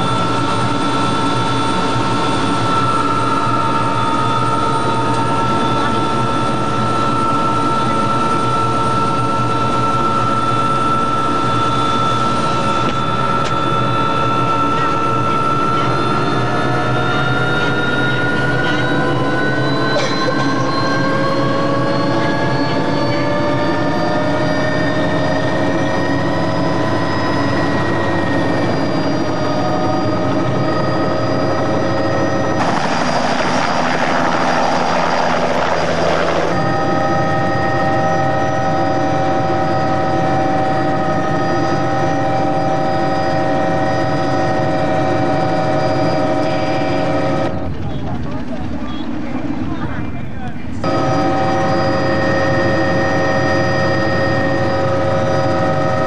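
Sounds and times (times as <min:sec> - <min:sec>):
helicopter engine and rotor whine: 0:00.0 - 0:56.0
rushing noise: 0:32.5 - 0:37.3.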